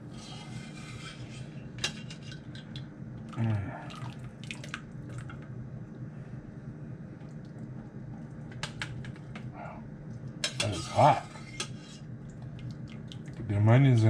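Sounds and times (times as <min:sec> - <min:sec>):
steady low hum: 0:00.0 - 0:14.0
broth dripping and splashing: 0:02.6 - 0:05.4, 0:12.1 - 0:13.5.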